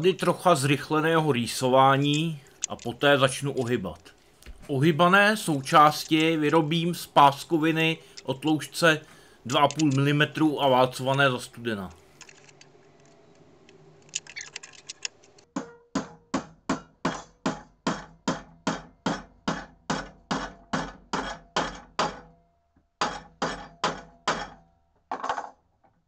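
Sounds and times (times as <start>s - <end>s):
hammer striking steel: 15.6s - 22.4s, 23.0s - 24.7s.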